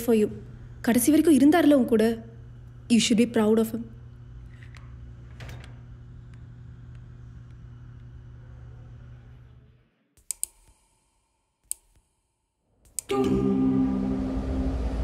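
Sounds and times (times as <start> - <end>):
computer mouse clicks: 10.2 - 12.1, 12.8 - 13.1
low hum: 13.1 - 15.0
loud rumble with low drone: 14.0 - 15.0.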